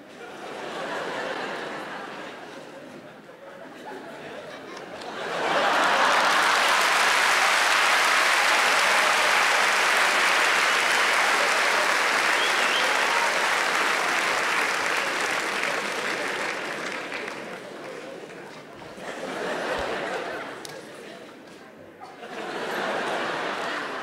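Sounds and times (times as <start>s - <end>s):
audience applauding: 5.0s - 18.6s.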